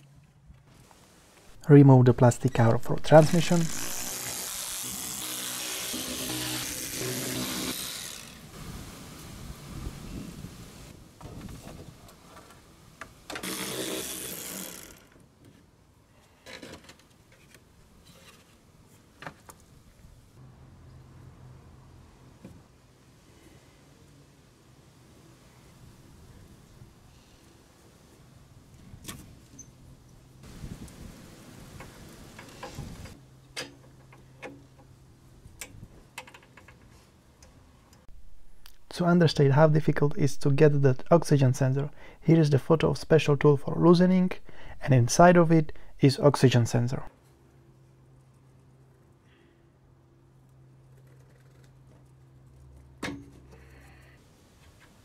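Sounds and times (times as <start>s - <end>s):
clicks and knocks of fasteners: 35.6s - 37.5s.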